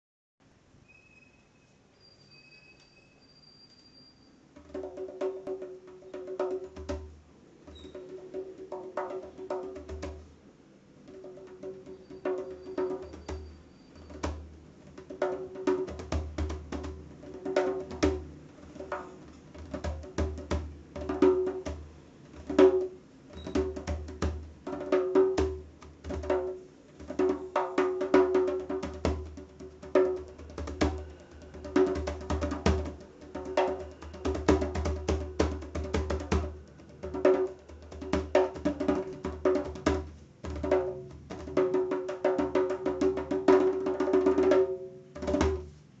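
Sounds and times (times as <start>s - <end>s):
djembe played by hand: 4.6s - 7.1s, 7.7s - 10.3s, 11.0s - 45.7s.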